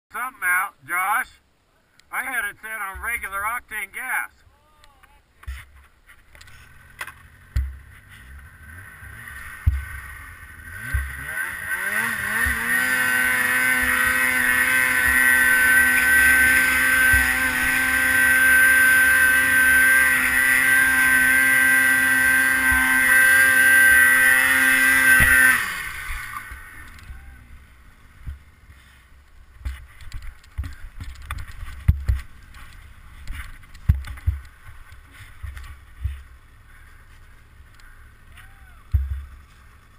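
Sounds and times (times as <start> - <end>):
knocks of snow and sled: 2.6 - 3.6, 4.9 - 39.9
snowmobile engine revving: 6.4 - 29.0.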